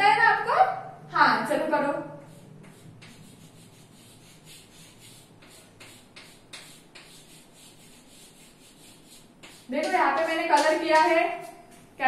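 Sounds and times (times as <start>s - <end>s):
chalk scratching on blackboard: 2.2s - 11.5s.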